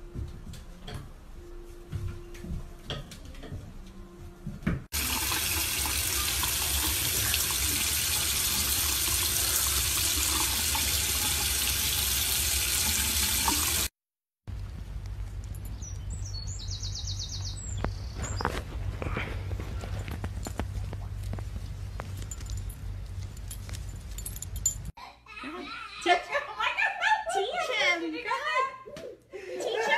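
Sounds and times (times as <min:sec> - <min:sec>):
tap water running and splashing: 0:04.9 - 0:13.9.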